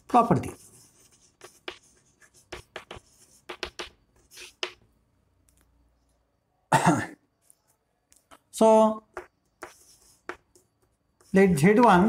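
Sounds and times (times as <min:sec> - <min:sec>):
chalk scratching on chalkboard: 0:00.0 - 0:04.8, 0:09.0 - 0:12.0.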